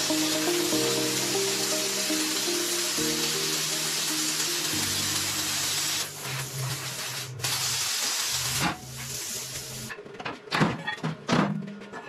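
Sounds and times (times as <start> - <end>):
plasma cutter hissing: 0.0 - 9.9.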